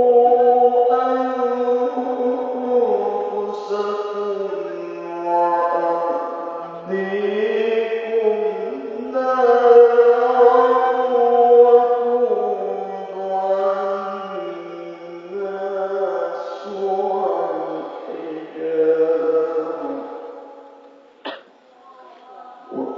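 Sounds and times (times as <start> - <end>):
man reciting melodically: 0.0 - 21.2, 22.7 - 22.9.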